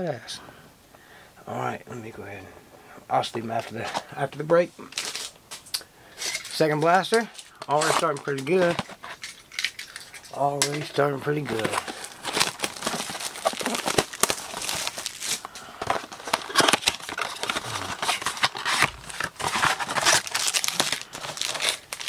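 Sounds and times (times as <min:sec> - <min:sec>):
plastic wrapping crinkling and tearing: 0:04.8 - 0:22.0.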